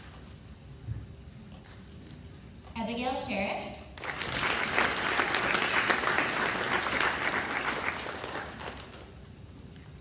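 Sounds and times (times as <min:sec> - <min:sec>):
audience applauding: 0:04.0 - 0:09.2.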